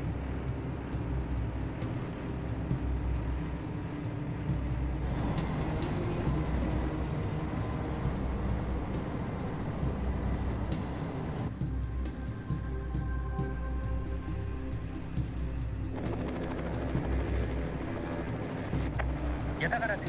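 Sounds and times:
heavy vehicle engines rumbling: 0.0 - 20.0.

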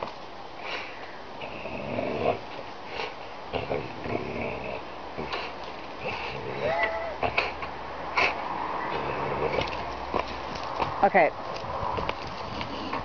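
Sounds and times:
dog breathing hard and snorting: 5.2 - 6.6, 7.2 - 10.5, 12.0 - 13.0.

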